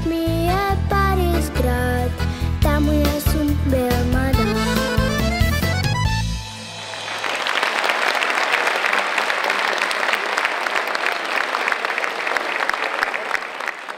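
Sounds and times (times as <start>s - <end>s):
audience applauding: 6.5s - 13.9s.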